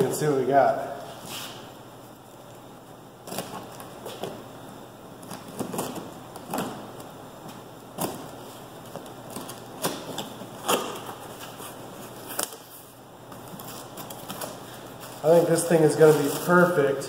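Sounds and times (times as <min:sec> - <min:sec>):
tape peeling off cardboard: 0:05.2 - 0:07.1, 0:08.0 - 0:14.6.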